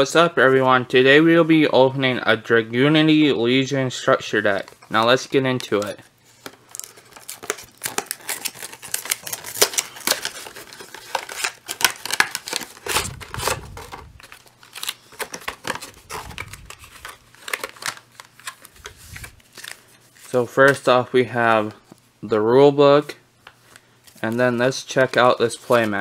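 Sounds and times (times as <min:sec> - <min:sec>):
plastic wrap crinkling and tearing: 0:05.6 - 0:20.4.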